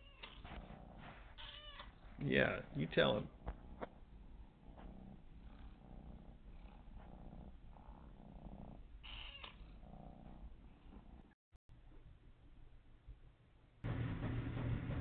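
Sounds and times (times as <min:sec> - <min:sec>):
cat purring: 0:00.2 - 0:11.4.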